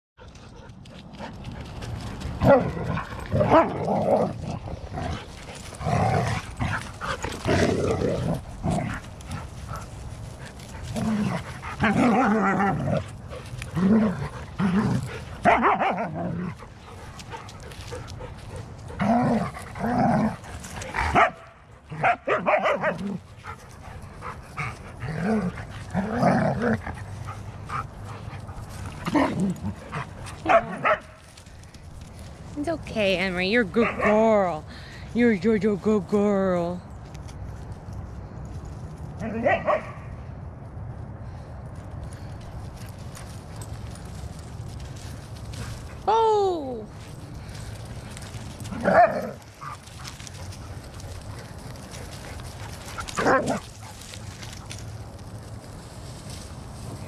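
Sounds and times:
dogs barking and yipping: 8.2s - 31.4s, 33.8s - 34.2s, 39.2s - 40.1s, 46.9s - 55.0s.

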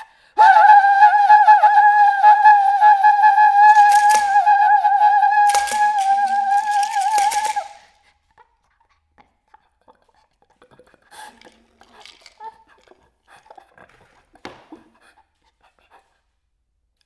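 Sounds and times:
flute high wavering note: 0.4s - 7.8s.

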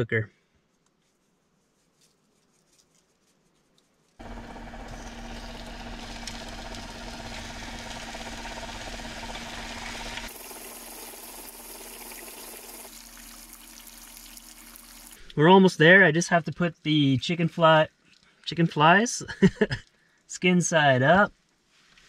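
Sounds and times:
low steady hum: 4.2s - 18.4s
chicken sizzling in frying pan: 9.2s - 15.2s.

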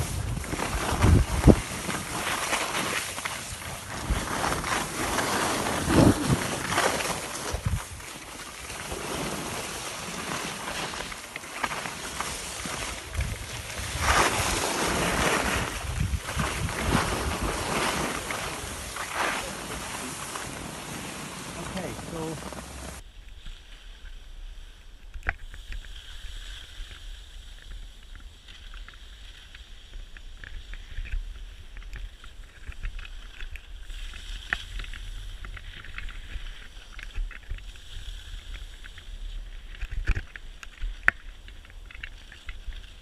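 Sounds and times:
wind rumble on microphone: 0.0s - 2.5s, 3.5s - 8.1s, 12.7s - 23.0s
skis sliding over snow: 0.0s - 43.0s.

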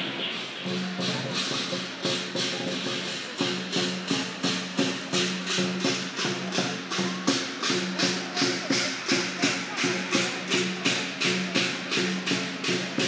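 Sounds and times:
cymbals clashing: 0.0s - 13.0s
drum beating: 0.0s - 13.0s.

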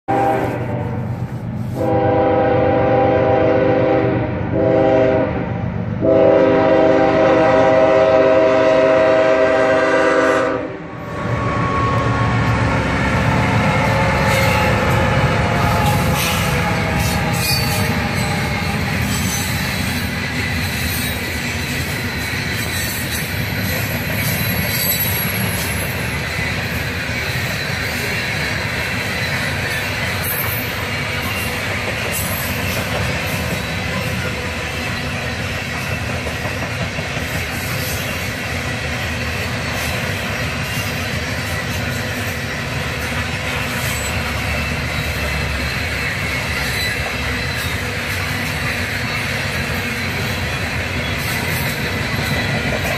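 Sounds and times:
train wheels rumbling on rail: 0.0s - 52.9s
faint high wheel squeal: 13.7s - 36.1s, 43.5s - 52.8s.

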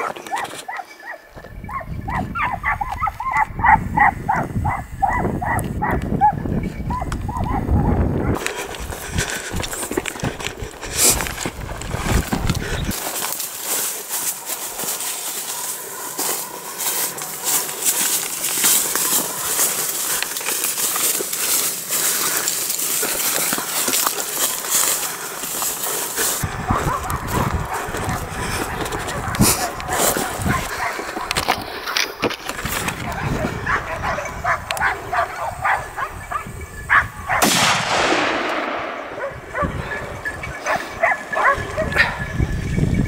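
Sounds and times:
branches rustling against clothing: 0.0s - 3.8s, 6.4s - 37.4s, 38.8s - 43.0s
dogs barking: 0.0s - 10.8s, 12.8s - 37.5s, 38.7s - 42.5s
footsteps crunching dry leaves: 8.3s - 36.1s
twigs snapping: 8.4s - 33.3s
gunshot echoing: 37.4s - 39.4s.

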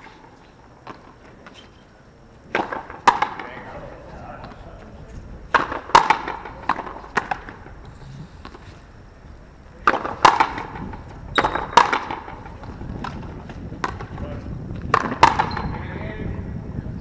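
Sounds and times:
ball smacking against wall: 2.5s - 3.5s, 5.5s - 7.6s, 9.8s - 14.2s, 14.8s - 15.6s
ball struck by rackets: 2.5s - 3.8s, 5.5s - 8.8s, 9.8s - 15.8s.

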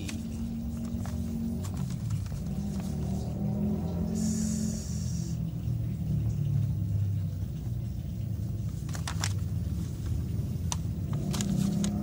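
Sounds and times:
paper crackling: 0.0s - 3.1s, 8.6s - 12.0s.

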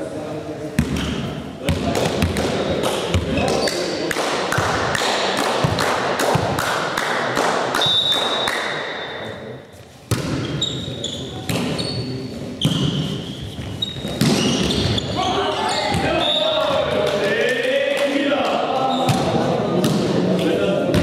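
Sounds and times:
voices echoing: 0.0s - 21.0s
sneakers squeaking on floor: 3.1s - 3.9s, 7.8s - 16.6s
ball bouncing on floor: 14.0s - 15.0s.

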